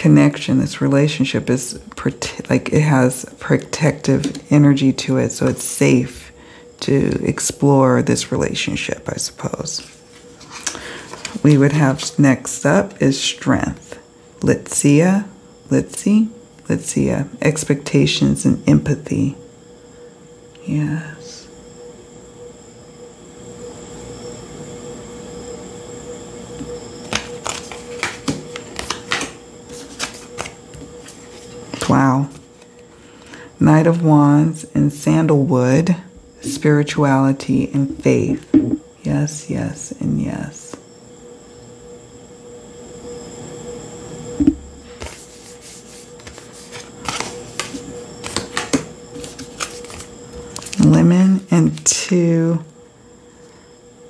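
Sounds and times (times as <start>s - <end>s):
faint steady hum: 0.0s - 54.0s
cards clicking and rustling: 27.0s - 32.0s, 46.2s - 50.8s
cards snapping and tapping on table: 27.1s - 29.4s
card tapping on table: 38.3s - 38.8s.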